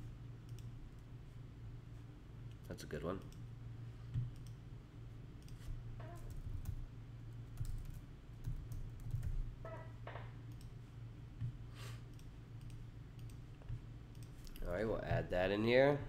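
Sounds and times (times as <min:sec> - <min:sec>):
low steady hum: 0:00.0 - 0:16.0
typing on a keyboard: 0:07.6 - 0:09.4.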